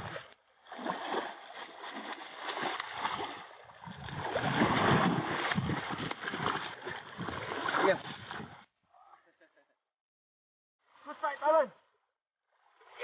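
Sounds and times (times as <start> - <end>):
fish thrashing and splashing in water: 0.0 - 8.4.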